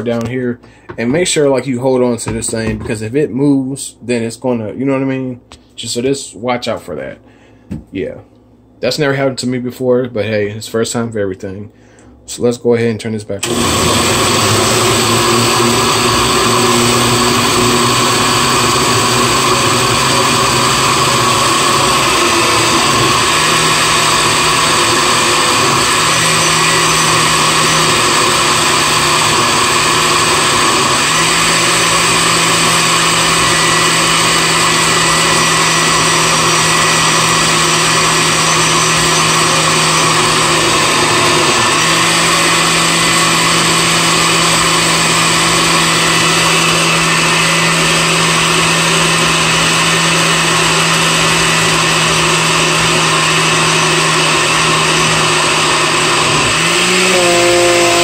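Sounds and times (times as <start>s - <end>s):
blender motor running: 13.4s - 58.0s.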